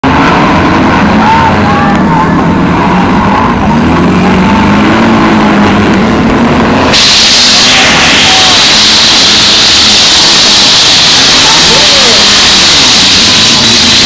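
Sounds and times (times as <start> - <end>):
car engines revving hard: 0.0 - 14.0
loud steady hiss: 6.9 - 14.0.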